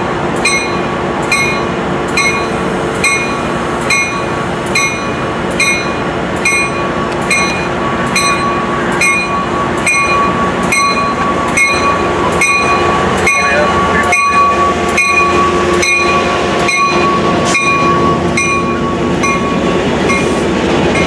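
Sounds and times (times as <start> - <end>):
diesel train running: 0.0 - 21.0
steady high whine: 0.0 - 21.0
bell ringing: 0.4 - 20.4.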